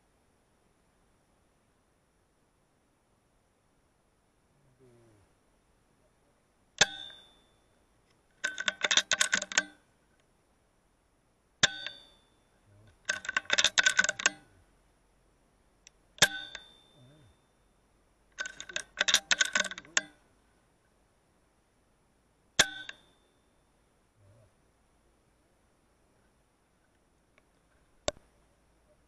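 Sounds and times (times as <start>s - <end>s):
rapid metallic clicks: 8.1s - 9.8s, 12.9s - 14.5s, 18.3s - 20.2s.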